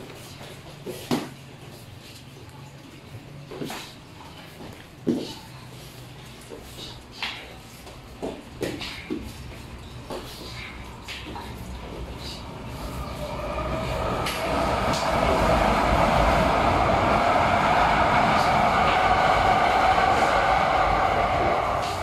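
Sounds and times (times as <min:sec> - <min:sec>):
loud rushing noise: 0:12.4 - 0:22.0.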